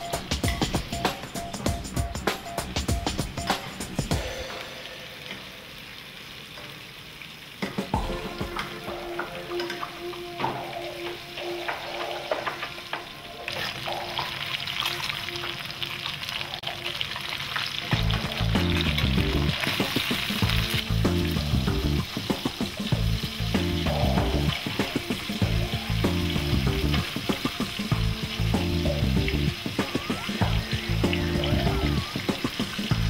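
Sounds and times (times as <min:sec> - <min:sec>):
fish sizzling in a pan: 0:00.0 - 0:33.0.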